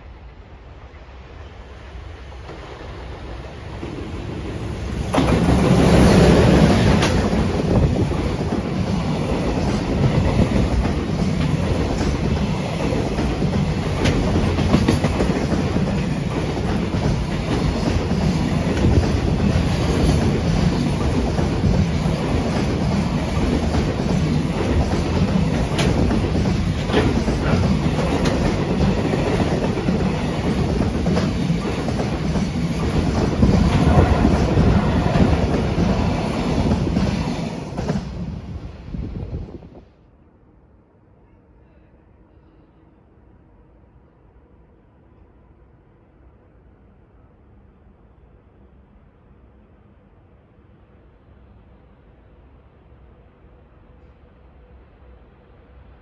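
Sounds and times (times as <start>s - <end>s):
electric locomotive passing: 0.0s - 56.0s
wheels clacking over rail joints: 9.4s - 38.1s.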